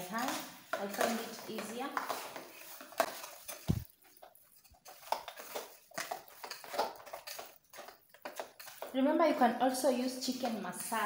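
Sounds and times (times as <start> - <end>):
hands mixing chicken in metal bowl: 0.0 - 11.0.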